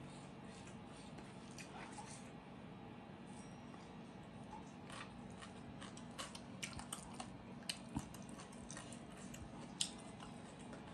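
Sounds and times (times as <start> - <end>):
chewing and mouth sounds: 4.6 - 10.9.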